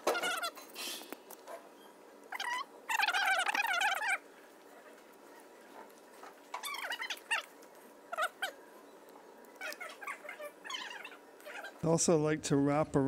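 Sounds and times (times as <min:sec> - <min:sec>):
high-pitched animal calls: 0:00.0 - 0:01.1, 0:02.3 - 0:04.3, 0:06.5 - 0:08.7, 0:09.6 - 0:11.8.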